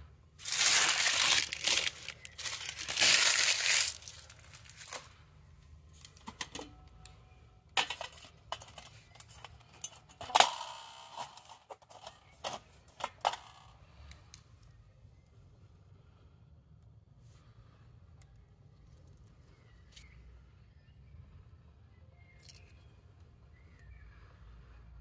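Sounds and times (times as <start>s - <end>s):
packaging crinkling and tearing: 0.4s - 5.1s.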